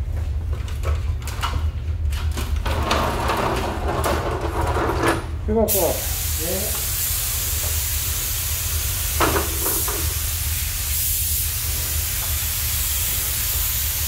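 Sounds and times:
spray gun hissing: 5.7s - 14.0s.

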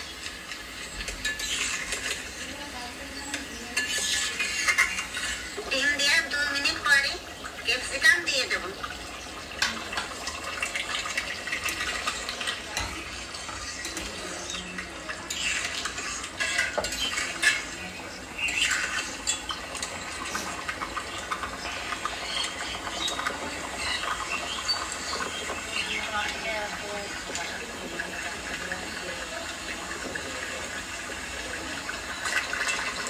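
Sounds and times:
gravy bubbling and popping: 0.0s - 33.0s.

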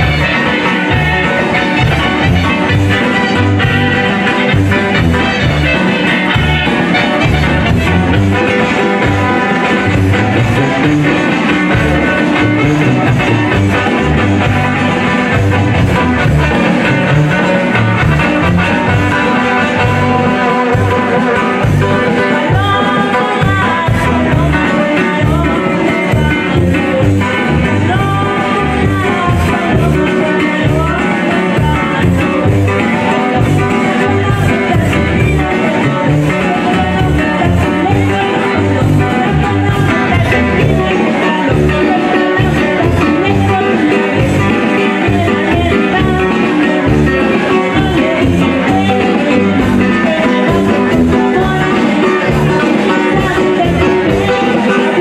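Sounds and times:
guitar: 0.0s - 55.0s
person singing: 0.0s - 55.0s
tuba bass line: 0.0s - 55.0s.

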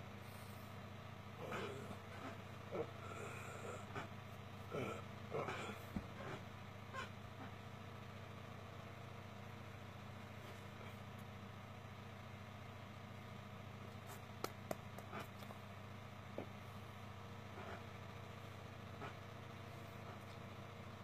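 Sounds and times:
low background hum: 0.0s - 21.0s
hands tapping together: 14.3s - 15.5s.

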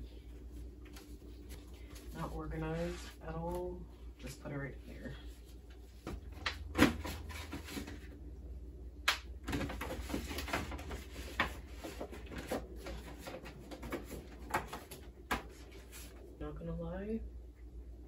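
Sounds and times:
papers rustling: 9.5s - 16.2s.

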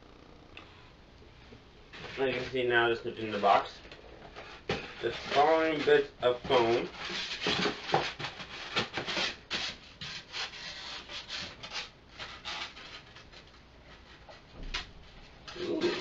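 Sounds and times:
foam scraping inside cardboard box: 4.8s - 13.1s.

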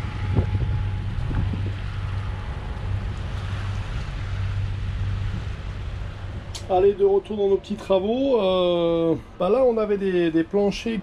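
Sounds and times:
wind noise on microphone: 0.0s - 7.7s
boat engine drone: 0.0s - 11.0s.

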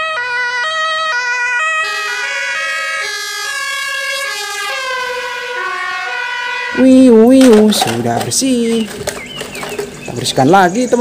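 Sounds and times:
ambulance two-tone siren: 0.0s - 7.8s.

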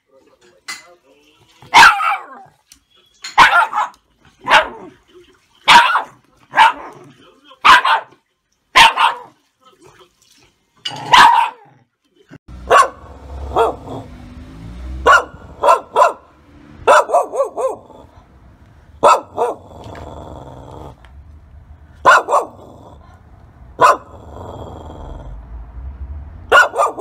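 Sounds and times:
dog barking: 1.7s - 2.5s, 3.4s - 4.9s, 5.7s - 7.0s, 7.6s - 9.4s, 11.0s - 11.8s, 12.6s - 14.1s, 15.0s - 18.1s, 19.0s - 20.0s, 22.0s - 22.7s, 23.8s - 24.2s, 26.5s - 27.0s.

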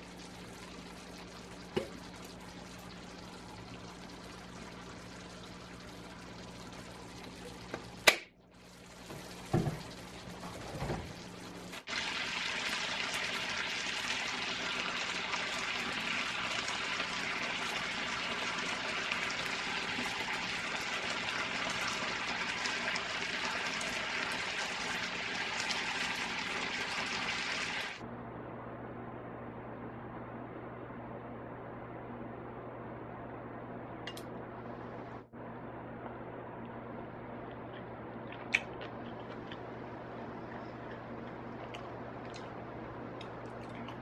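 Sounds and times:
food sizzling in a frying pan: 8.6s - 28.0s.

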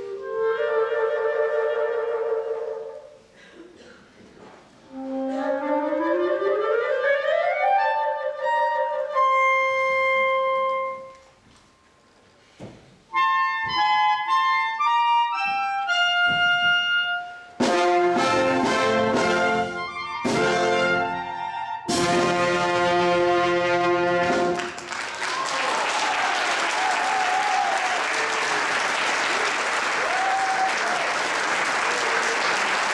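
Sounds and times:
solo clarinets: 0.0s - 3.3s, 4.8s - 11.4s, 13.1s - 24.7s
wind band playing chords: 13.1s - 24.9s.

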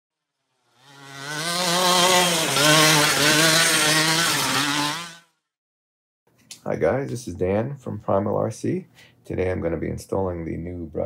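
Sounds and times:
rc truck motor revving: 0.3s - 5.5s.

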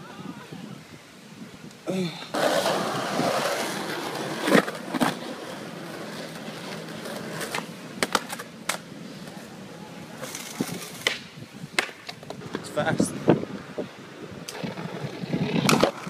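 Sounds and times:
skateboard wheels rolling on concrete: 0.0s - 16.0s
skateboard clacks: 2.2s - 9.5s, 10.2s - 12.7s, 14.4s - 16.0s
skateboard trick snaps: 7.4s - 8.9s, 10.2s - 12.6s, 14.4s - 16.0s.

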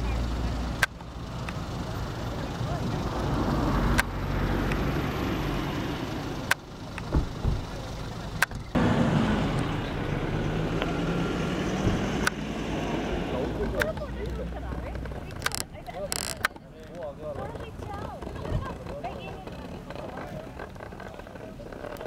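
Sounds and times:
faint voices: 0.0s - 3.6s, 12.8s - 22.0s
vehicle engine humming: 0.0s - 22.0s
sharp clicks: 13.7s - 17.0s.

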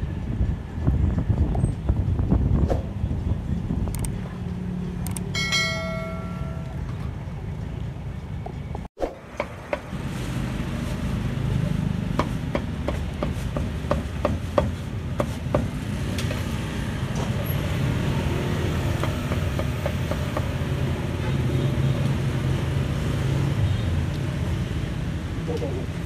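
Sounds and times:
low rumble of street traffic: 0.0s - 26.0s.

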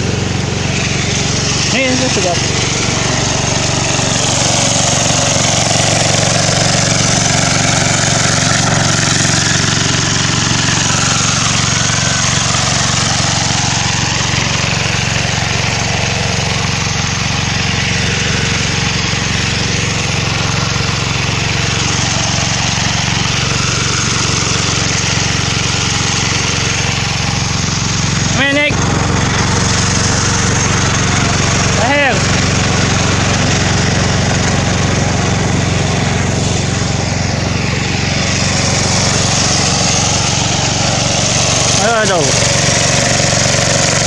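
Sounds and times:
small engine running: 0.0s - 44.0s.

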